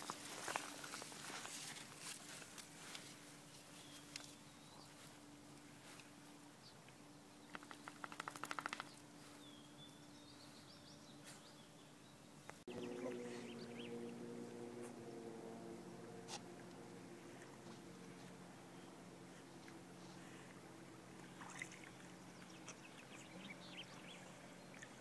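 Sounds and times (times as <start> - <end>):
low steady hum: 0.0 - 25.0
fast rattle of clicks: 7.5 - 8.9
bird chirps: 7.5 - 14.2
hum of held tones: 12.7 - 25.0.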